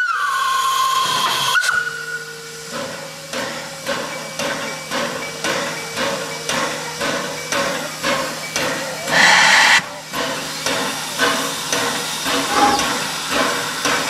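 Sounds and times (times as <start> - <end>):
steam locomotive whistle toot: 0.0 - 3.3, 8.1 - 10.6, 12.3 - 14.0
steam hissing from cylinders: 0.0 - 14.0
steam locomotive chuffing: 0.0 - 14.0.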